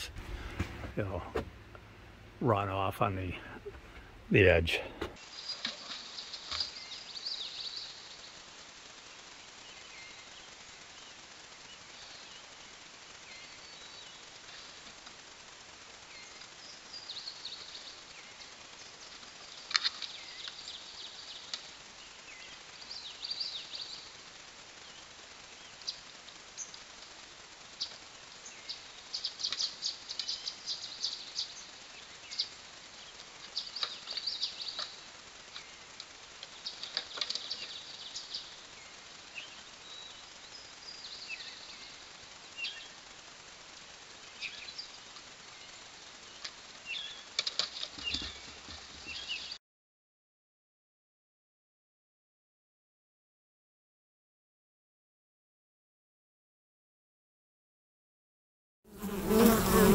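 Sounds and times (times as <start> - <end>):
low thump: 0.0 - 1.7
songbirds chirping: 0.0 - 15.1, 15.9 - 43.2, 43.8 - 49.6
steady hiss: 0.0 - 49.6.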